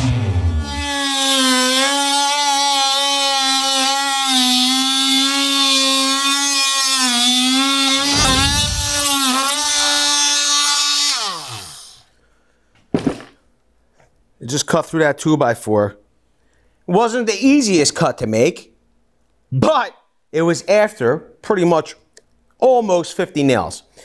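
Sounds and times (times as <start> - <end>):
motor winding down: 0.0 - 3.2, 7.4 - 12.0
oscillating multi-tool cutting wood: 0.0 - 12.1.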